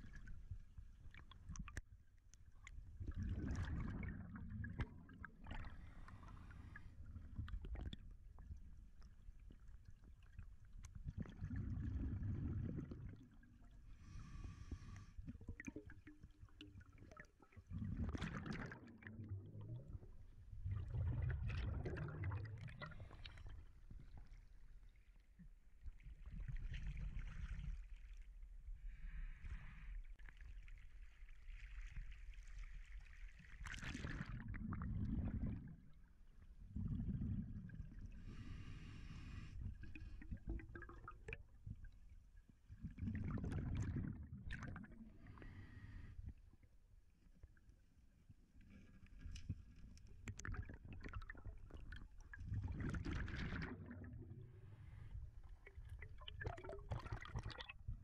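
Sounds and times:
muffled underwater rumble: 0:02.5 - 0:16.0, 0:17.5 - 0:27.9
water gurgling and bubbling: 0:03.0 - 0:06.9, 0:11.0 - 0:23.6, 0:33.7 - 0:35.9, 0:36.8 - 0:38.7, 0:42.8 - 0:45.7, 0:50.4 - 0:58.0.

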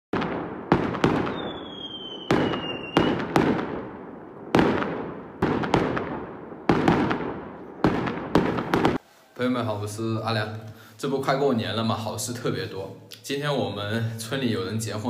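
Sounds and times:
fireworks bangs echoing: 0:00.1 - 0:09.0
falling firework whistle: 0:01.2 - 0:03.3.

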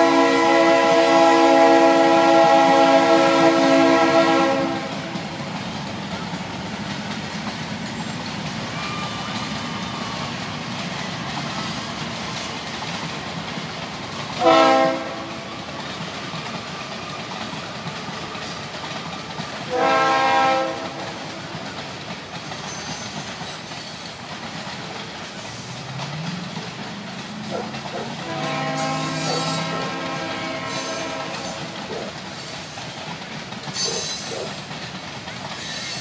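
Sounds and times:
train horn blasts: 0:00.0 - 0:05.2, 0:14.4 - 0:15.5, 0:19.7 - 0:21.2, 0:27.5 - 0:31.8
freight train rumbling: 0:00.0 - 0:36.0.

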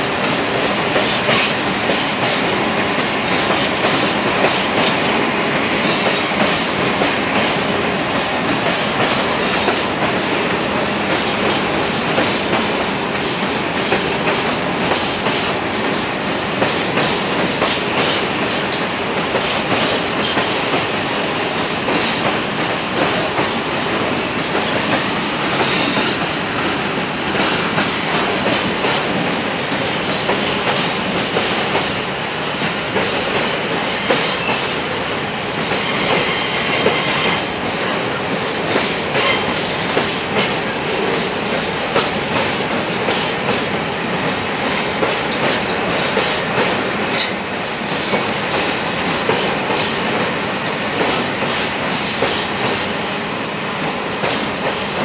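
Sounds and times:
train wheels clattering over rail joints: 0:00.2 - 0:32.0, 0:32.6 - 0:52.9
high wheel squeal: 0:54.0 - 0:55.0.

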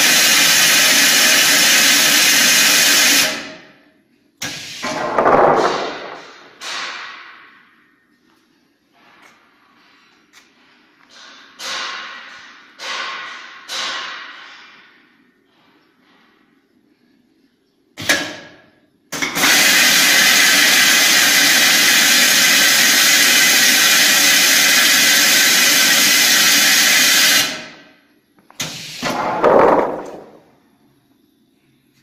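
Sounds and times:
compressed air blasting: 0:04.4 - 0:05.0, 0:28.6 - 0:29.3.

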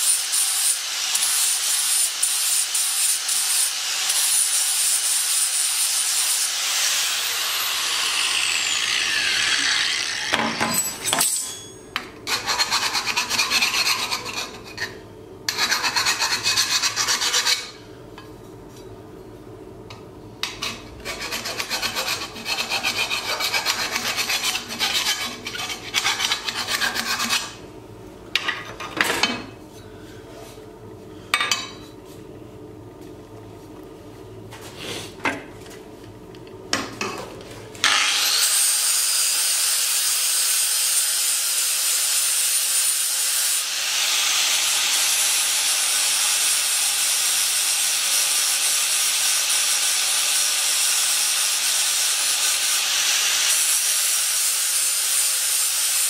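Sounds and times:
angle grinder whining: 0:05.7 - 0:11.1, 0:37.8 - 0:40.8
file rasping on metal pipe: 0:12.3 - 0:17.8, 0:20.4 - 0:27.6.

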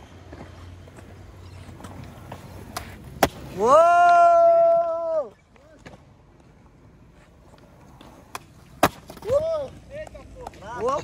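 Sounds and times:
skateboard clack: 0:00.0 - 0:11.0
skateboard wheels rolling on concrete: 0:00.0 - 0:11.0
person shouting: 0:03.5 - 0:05.3.

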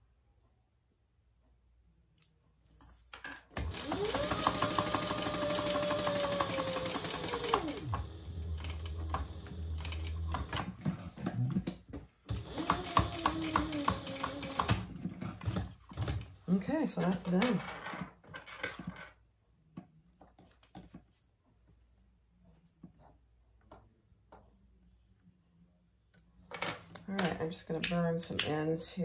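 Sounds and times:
sewing machine stitching: 0:03.5 - 0:10.9, 0:12.3 - 0:16.3.

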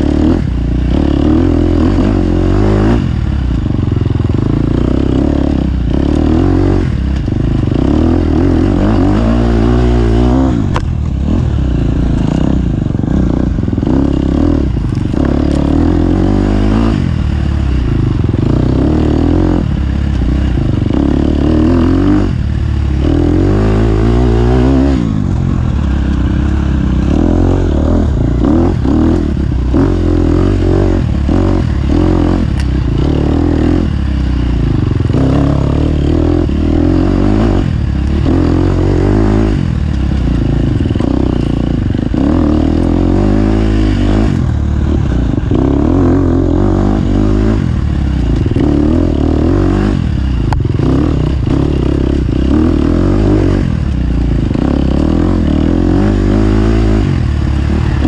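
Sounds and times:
racing engine revving: 0:00.0 - 0:58.0.

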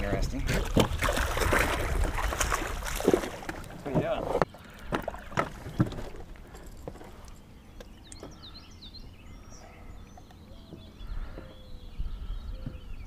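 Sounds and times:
low wind rumble: 0:00.0 - 0:13.0
sharp knocks in boat: 0:00.5 - 0:06.2
small birds chirping: 0:03.8 - 0:13.0.

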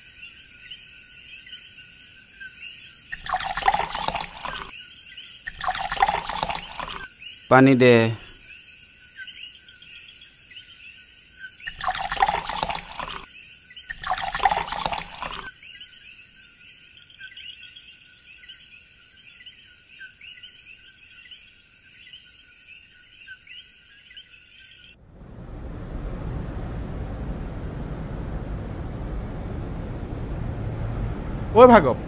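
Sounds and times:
liquid poured into a glass: 0:03.1 - 0:04.7, 0:05.5 - 0:07.1, 0:11.7 - 0:13.2, 0:13.9 - 0:15.5.

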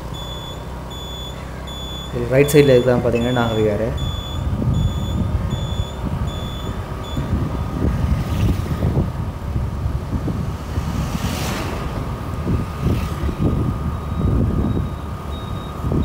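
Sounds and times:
vehicle road noise: 0:00.0 - 0:16.0
high electronic beeps: 0:00.1 - 0:07.7
wind buffeting microphone: 0:03.0 - 0:16.0
vehicle swishing past: 0:07.4 - 0:14.7.

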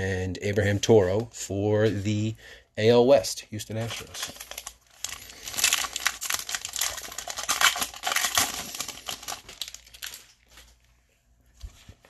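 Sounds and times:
foil wrapper crinkling: 0:03.8 - 0:10.8.

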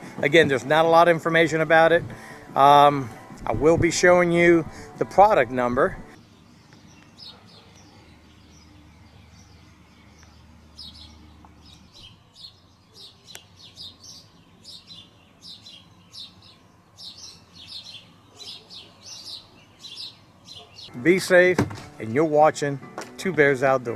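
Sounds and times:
small birds chirping: 0:06.1 - 0:21.4.

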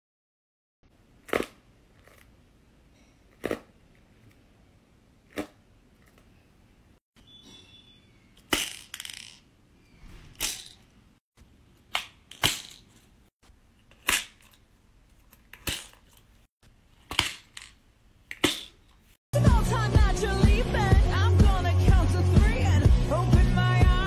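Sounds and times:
pins clattering in pin art toy: 0:08.4 - 0:09.5, 0:10.4 - 0:10.9.

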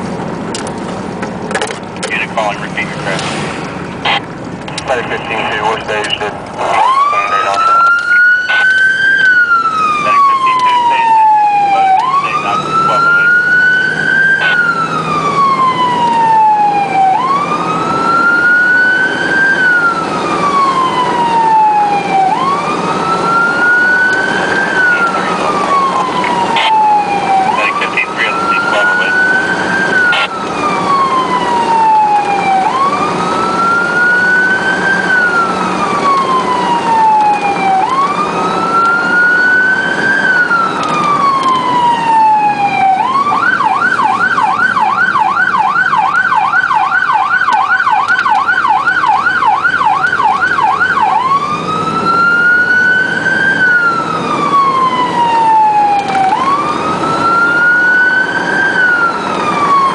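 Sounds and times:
engine and road noise: 0:00.0 - 0:59.9
electronic siren wailing and yelping: 0:04.0 - 0:59.9.

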